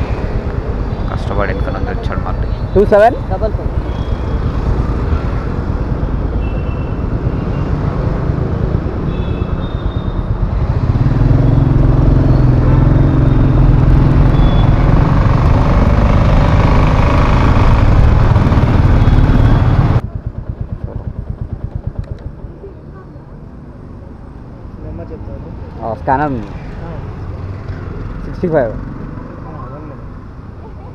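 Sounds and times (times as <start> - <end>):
traffic horn beeps: 6.3 - 7.8, 9.0 - 10.6, 12.3 - 15.0
motorcycle engine rumble: 10.3 - 23.6.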